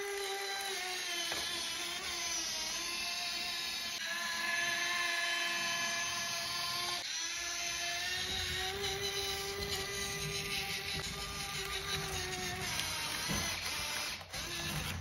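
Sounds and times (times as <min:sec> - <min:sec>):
high-pitched electric motor whine: 0:00.0 - 0:15.0.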